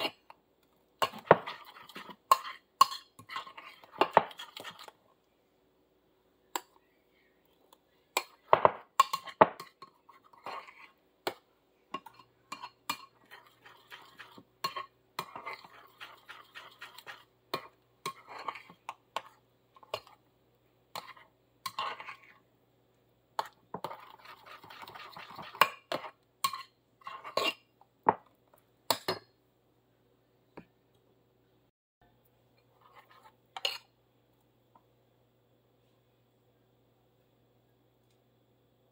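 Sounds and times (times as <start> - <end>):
spoon stirring batter: 0.0 - 5.5, 6.3 - 22.5, 23.3 - 29.4, 32.5 - 34.9.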